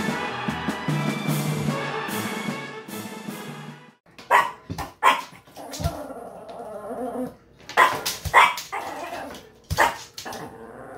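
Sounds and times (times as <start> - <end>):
small dog barking: 4.3 - 5.4, 7.8 - 9.1, 9.8 - 10.1.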